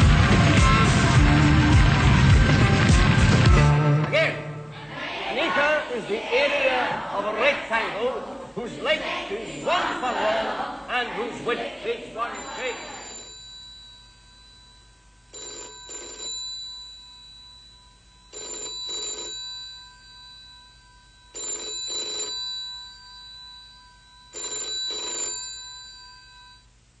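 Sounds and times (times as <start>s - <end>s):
telephone bell double rings: 12.4s - 26.7s.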